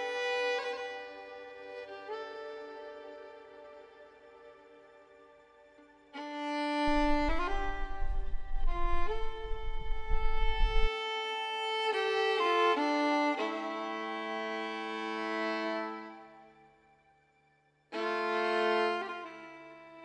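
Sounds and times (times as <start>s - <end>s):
bowed string melody: 0.0s - 20.0s
low rumble: 6.9s - 10.9s.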